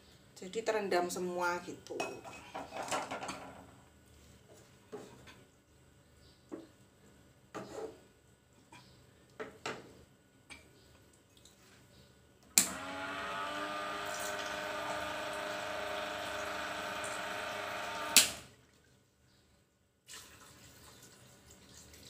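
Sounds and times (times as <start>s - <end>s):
electric pump humming: 12.5s - 18.5s
dispenser pump switch click: 12.6s - 12.8s
water pouring into a cup: 20.1s - 22.0s.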